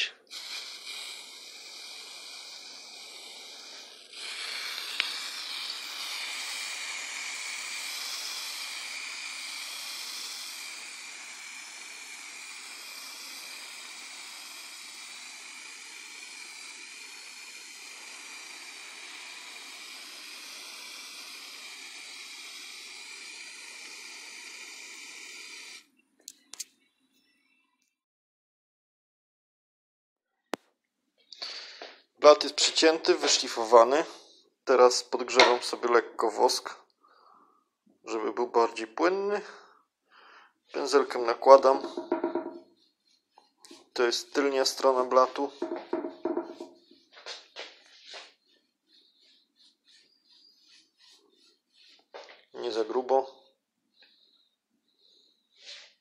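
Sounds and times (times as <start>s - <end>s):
spray paint can hissing: 0.0s - 25.9s, 40.7s - 53.3s.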